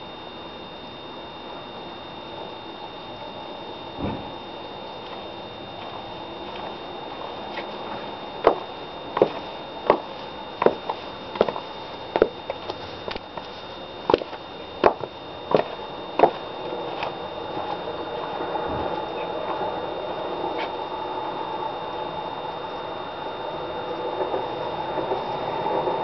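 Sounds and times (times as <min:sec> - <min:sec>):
high-heeled shoes clicking: 0:08.4 - 0:11.6, 0:12.2 - 0:13.5, 0:14.1 - 0:16.4.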